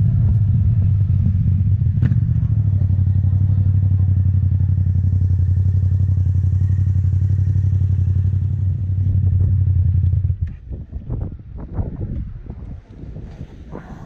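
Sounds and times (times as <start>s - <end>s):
gusty rumbles and knocks: 0.0s - 3.0s, 9.0s - 14.0s
motorcycle engine droning: 0.0s - 14.0s.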